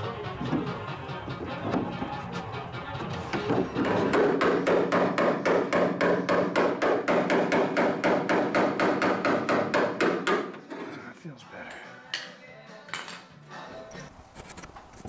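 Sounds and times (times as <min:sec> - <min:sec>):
hammer striking steel: 0:03.5 - 0:10.6.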